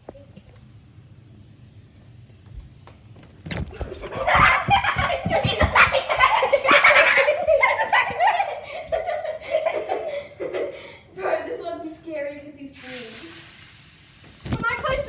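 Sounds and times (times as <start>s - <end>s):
loud excited laughter: 3.8s - 11.0s.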